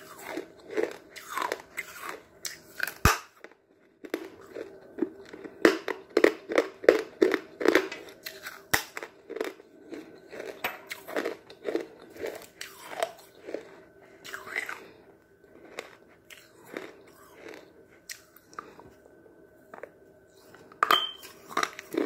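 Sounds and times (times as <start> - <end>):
person chewing chalk crunching: 0.0 - 22.0.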